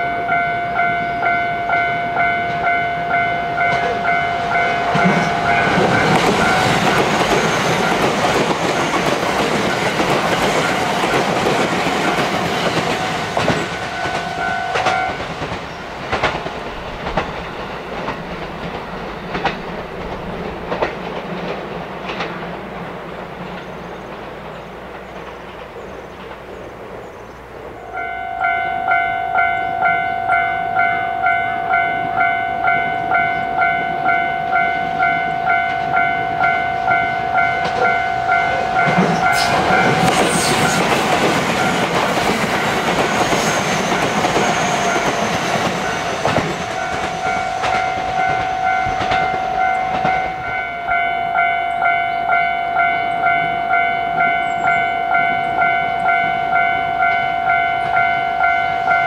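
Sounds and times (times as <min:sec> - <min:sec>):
level crossing bell ringing: 0:00.0 - 0:08.0, 0:13.8 - 0:15.2, 0:28.0 - 0:40.2, 0:45.9 - 0:59.0
electric train passing: 0:00.0 - 0:59.0.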